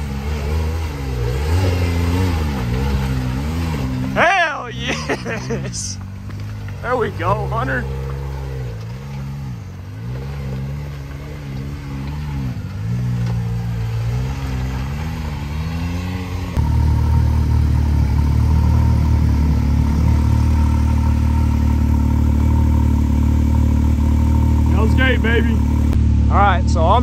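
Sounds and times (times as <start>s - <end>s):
engine idling close up: 0.0s - 10.2s, 16.6s - 27.0s
engine revving at low revs: 0.0s - 27.0s.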